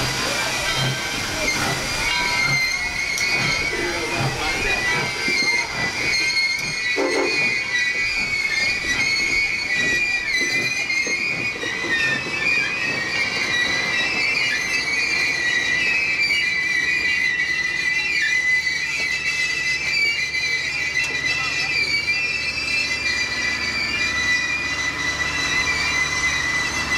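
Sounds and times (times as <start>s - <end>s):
train wheels and brakes squealing: 0.0s - 26.9s.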